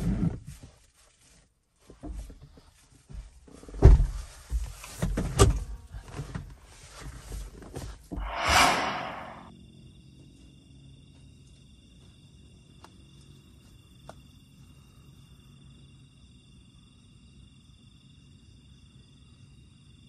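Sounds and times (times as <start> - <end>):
thuds inside a car: 3.7 - 5.6
rush of noise: 8.2 - 9.5.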